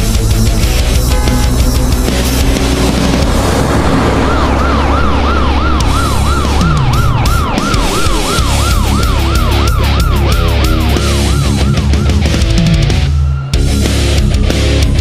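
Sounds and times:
steady low rumble: 0.2 - 8.6
siren yelping: 0.9 - 13.6.

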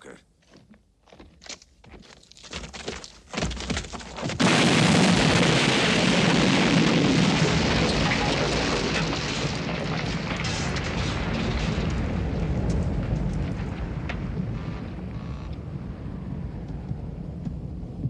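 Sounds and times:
debris raining down: 3.0 - 16.6
loud explosion blast: 4.4 - 18.0
low rumble: 5.1 - 18.0.

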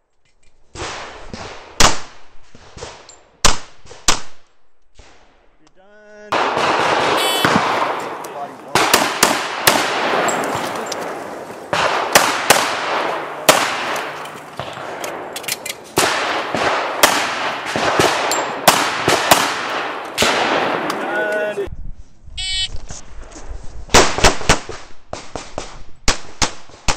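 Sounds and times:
pistol shots echoing: 6.3 - 15.4, 16.0 - 21.5.

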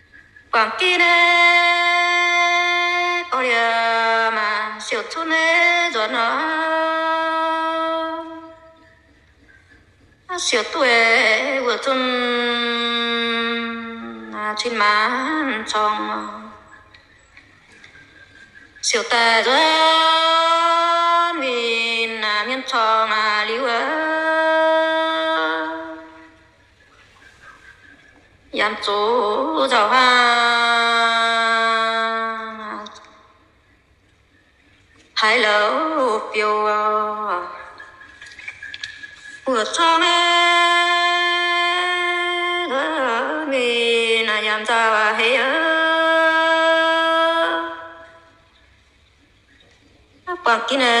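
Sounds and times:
person singing unaccompanied: 0.6 - 8.9, 10.3 - 16.8, 18.8 - 26.4, 28.6 - 33.2, 35.2 - 38.0, 39.4 - 48.4, 50.3 - 51.0
person singing long held notes: 10.4 - 16.6, 18.9 - 26.4.

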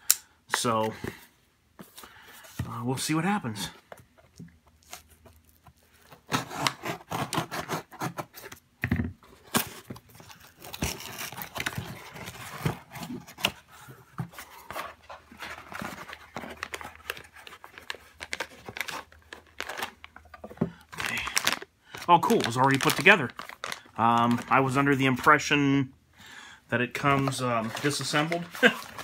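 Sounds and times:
packing scraping tearing and rustling: 4.6 - 8.6, 9.3 - 24.8, 27.0 - 29.0
blade slitting box tape: 6.3 - 8.4
plastic bag crinkling: 15.3 - 25.0, 27.0 - 29.0.

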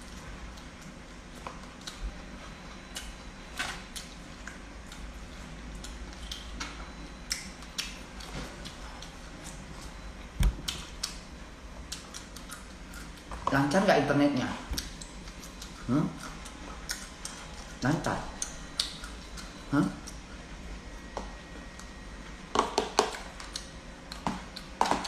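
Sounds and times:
chewing and lip smacks: 0.0 - 3.3, 3.9 - 13.4, 14.7 - 20.3, 23.1 - 24.8.

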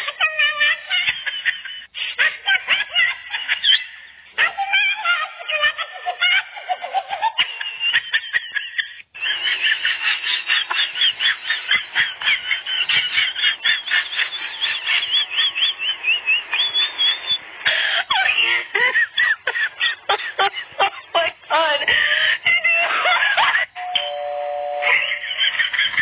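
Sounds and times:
young animals squealing and mewing: 3.4 - 5.3.

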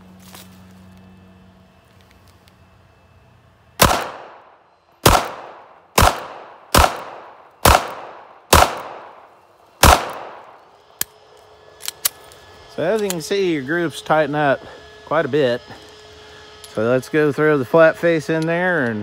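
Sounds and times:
pistol shots: 3.8 - 10.6.

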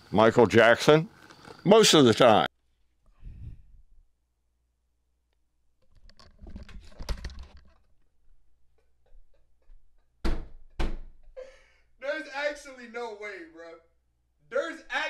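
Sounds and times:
clicks and rustling: 5.8 - 8.1
sharp loud knock: 10.2 - 11.1.

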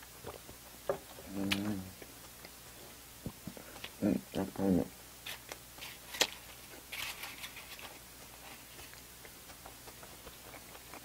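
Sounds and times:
plastic crinkling: 5.3 - 9.0.

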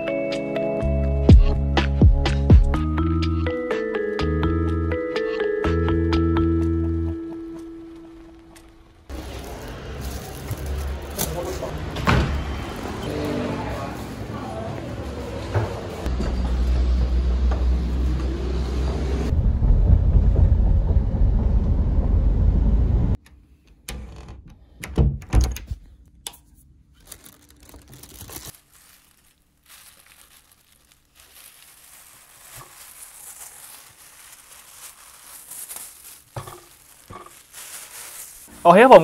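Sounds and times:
plastic shrink-wrap crinkling: 9.1 - 11.7, 26.9 - 39.0.

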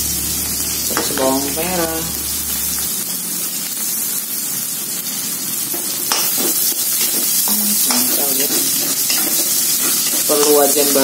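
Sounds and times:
food sizzling in hot oil: 0.0 - 11.0
metal spatula scraping wok: 5.6 - 11.0.

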